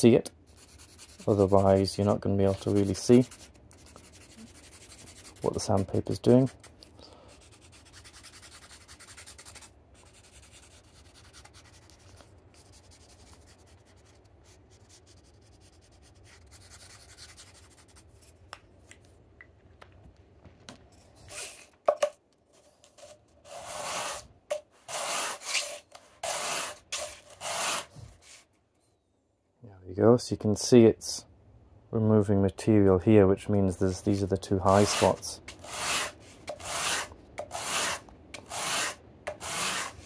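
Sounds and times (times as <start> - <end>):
wood rubbed on sandpaper: 0.5 - 6.6, 23.5 - 24.3, 24.9 - 28.4, 34.0 - 40.0
marker scribbling on wood: 0.5 - 6.8, 7.4 - 18.3, 23.0 - 24.2, 24.8 - 28.4, 34.0 - 40.0.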